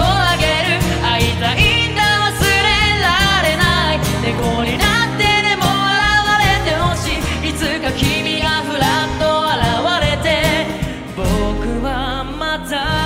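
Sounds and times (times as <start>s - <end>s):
drums: 0.0s - 11.8s
acoustic guitar: 0.0s - 13.0s
keyboards: 0.0s - 13.0s
man singing: 0.0s - 13.0s
woman singing: 0.0s - 13.0s.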